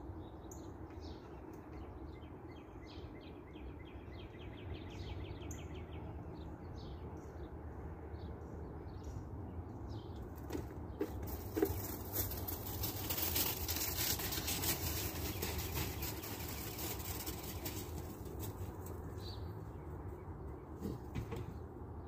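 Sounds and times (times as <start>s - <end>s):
rustling crackle with clicks: 11.2s - 19.1s.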